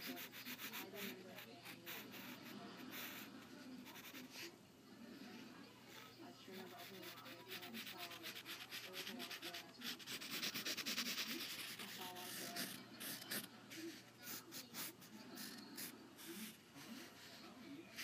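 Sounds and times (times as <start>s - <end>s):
pencil scratching on paper: 0.0s - 4.5s, 5.2s - 18.0s.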